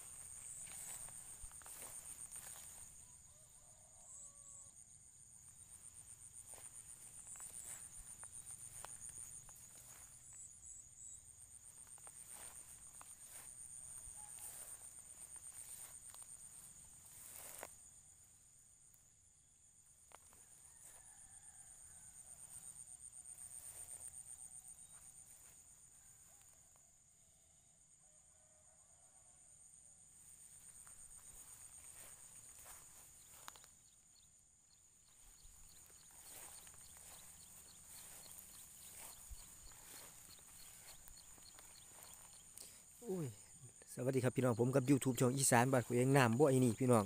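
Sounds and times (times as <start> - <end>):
crickets trilling: 0.0 - 27.7, 29.8 - 47.0.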